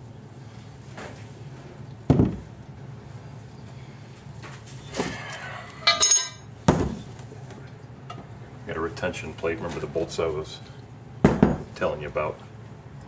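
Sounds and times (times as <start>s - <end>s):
steel parts clinking: 5.8s - 6.5s
knock on workbench: 11.2s - 11.6s.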